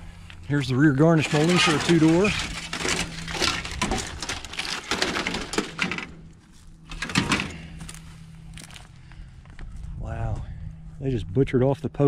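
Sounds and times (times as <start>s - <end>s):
footsteps crunching on gravel: 6.2s - 6.9s, 7.6s - 10.5s.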